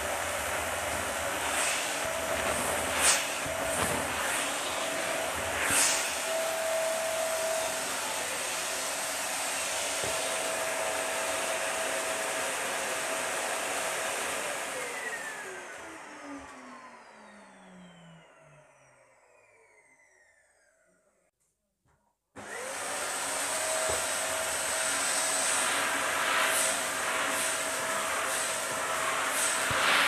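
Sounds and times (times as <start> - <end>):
vacuum cleaner suction drone: 0.0 - 21.2, 22.4 - 30.0
motor winding down: 14.9 - 21.2.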